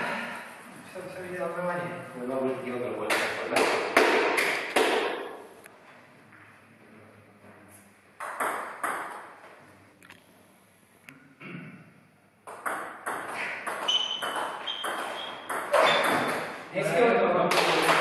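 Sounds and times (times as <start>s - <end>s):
short high squeak: 13.9s - 16.1s.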